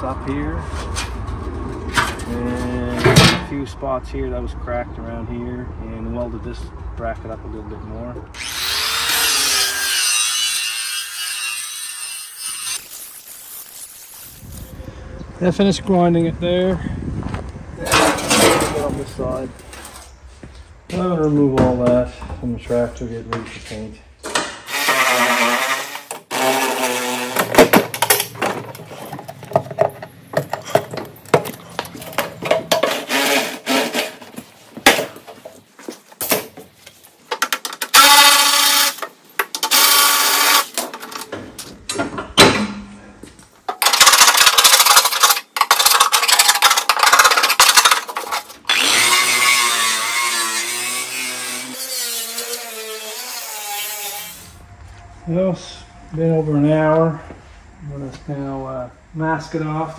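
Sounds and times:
electric drill whining: 8.4s - 9.9s
angle grinder on steel: 8.4s - 14.4s, 24.7s - 27.8s, 32.7s - 34.2s, 37.9s - 40.8s, 43.8s - 54.6s.

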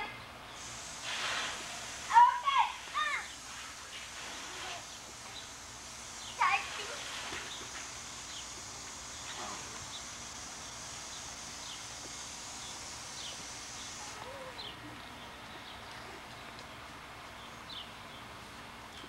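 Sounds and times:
steady high hiss: 0.0s - 19.0s.

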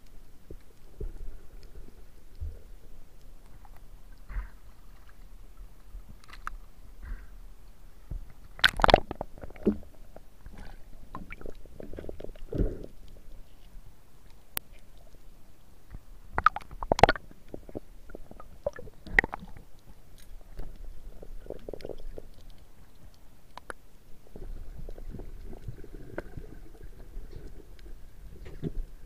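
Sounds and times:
small clicks and gurgles: 0.0s - 7.4s, 8.1s - 29.0s
steady low underwater rumble: 0.0s - 29.0s
sharp knocks underwater: 8.1s - 9.9s, 16.4s - 19.5s.

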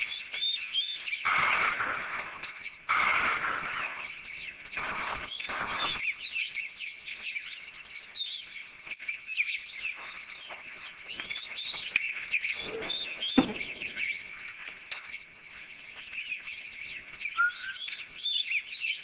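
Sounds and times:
birds twittering: 0.0s - 19.0s
sharp thump: 12.6s - 14.1s.

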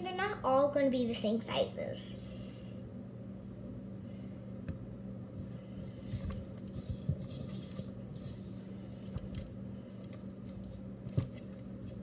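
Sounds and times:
steady low hum: 0.0s - 12.0s
hands rolling dough: 5.4s - 12.0s.

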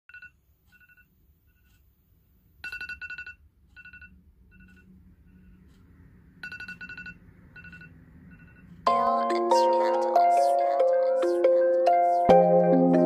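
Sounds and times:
phone alarm beeping: 2.6s - 5.6s, 6.4s - 9.0s.

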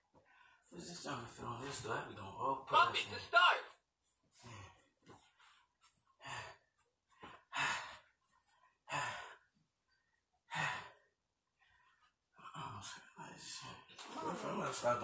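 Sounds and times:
man breathing out hard: 6.2s - 8.2s, 8.8s - 9.5s.

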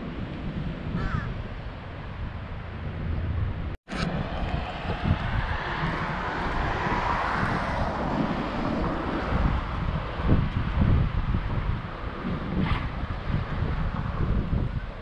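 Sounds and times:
wind rumbling on microphone: 0.0s - 15.0s
passing vehicle: 3.9s - 15.0s.

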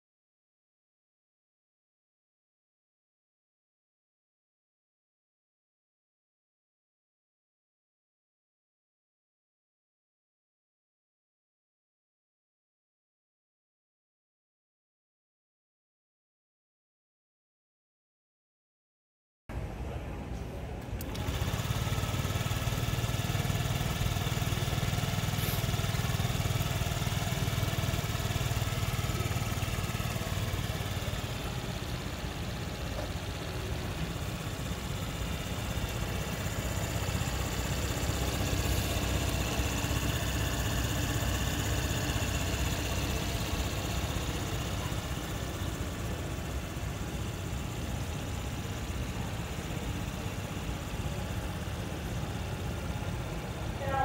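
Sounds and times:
scooter engine idling: 20.9s - 54.0s.

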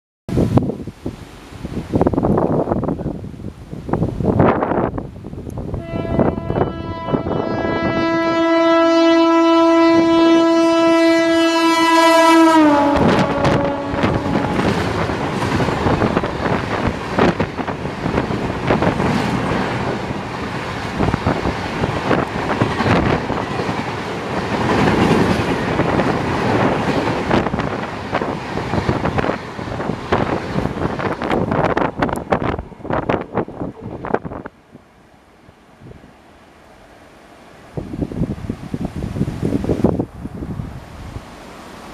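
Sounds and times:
locomotive horn blast: 5.7s - 14.9s
train wheels clattering over rail joints: 14.6s - 32.3s.

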